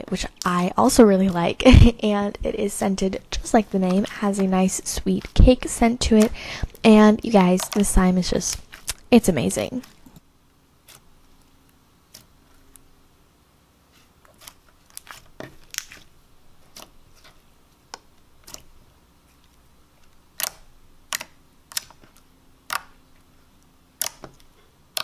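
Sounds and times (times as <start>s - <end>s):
slime squishing with pops: 2.7s - 10.2s, 14.3s - 16.1s, 20.0s - 25.0s.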